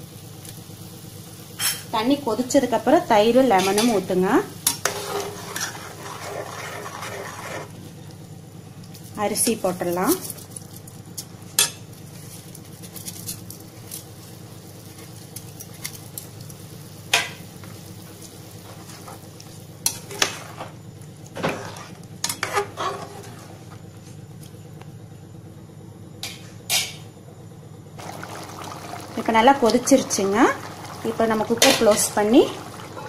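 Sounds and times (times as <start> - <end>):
liquid bubbling hiss: 4.2 - 8.1, 28.0 - 33.0
ladle clinking and scraping pot: 4.7 - 7.8, 19.9 - 20.7, 21.4 - 23.8.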